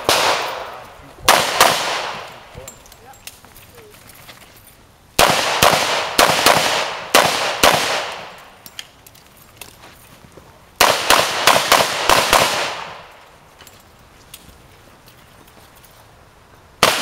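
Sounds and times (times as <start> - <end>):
pistol shots echoing: 0.0 - 2.4, 5.2 - 8.5, 10.8 - 13.1, 16.8 - 17.0.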